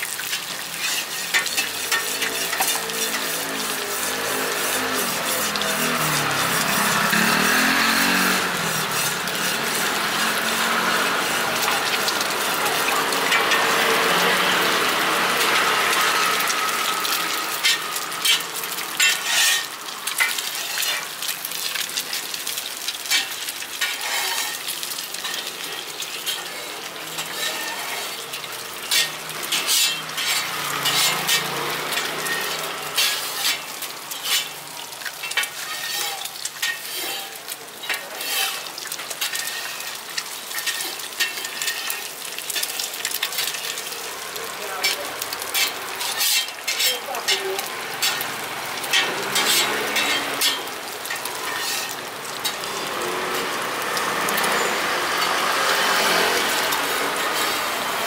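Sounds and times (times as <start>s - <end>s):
dough sizzling in hot oil: 0.0s - 58.0s
cooking tools clicking against pan: 0.2s - 3.4s, 17.5s - 27.5s, 28.1s - 44.0s, 44.8s - 52.8s.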